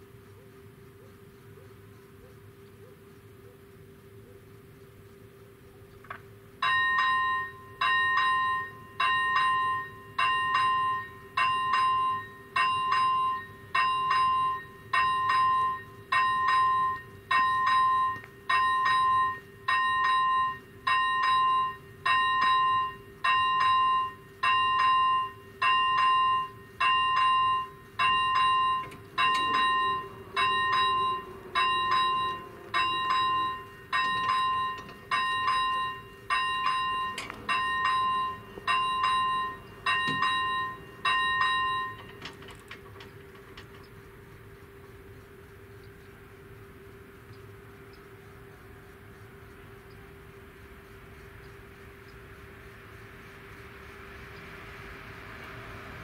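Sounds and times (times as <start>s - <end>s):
level crossing warning bell: 6.6s - 44.2s.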